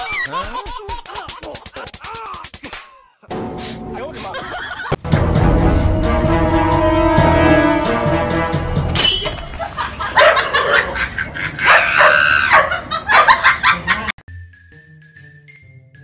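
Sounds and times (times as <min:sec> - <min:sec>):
dog barking loudly: 0:10.2 - 0:10.9, 0:11.6 - 0:13.5.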